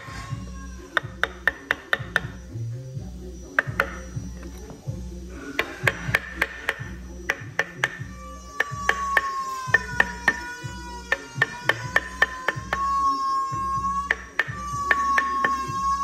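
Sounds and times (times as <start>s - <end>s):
background music: 0.0s - 16.0s
mallet tapping chisel into wood: 0.9s - 2.4s, 3.6s - 4.8s, 5.6s - 13.0s, 14.0s - 15.9s.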